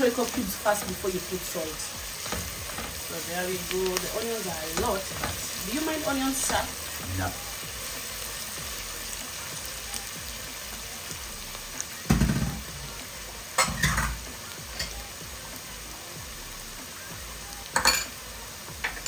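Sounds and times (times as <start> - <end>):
onions sizzling in hot oil: 0.0 - 19.0.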